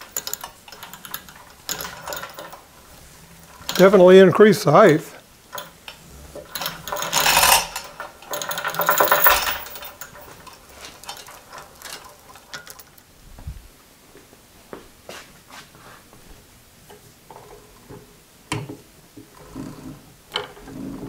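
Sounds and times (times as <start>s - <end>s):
faint machine clicks and knocks: 0.0s - 4.0s
metal chain rattling: 0.0s - 4.2s, 5.5s - 13.0s.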